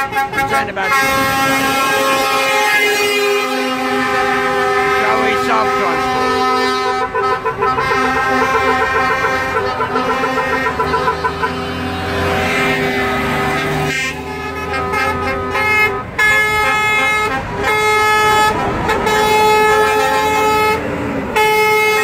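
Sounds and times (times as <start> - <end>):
heavy diesel engine noise: 0.0 - 22.0
truck air horns: 0.0 - 22.0.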